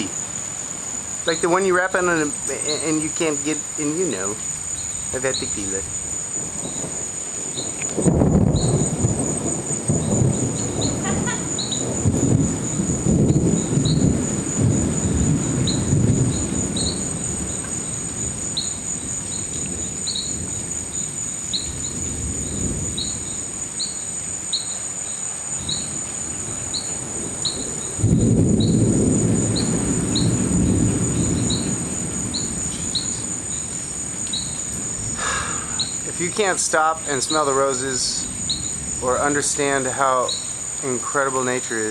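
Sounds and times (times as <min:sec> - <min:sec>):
crickets trilling: 0:00.0 - 0:41.9
thunder rumbling: 0:00.0 - 0:41.9.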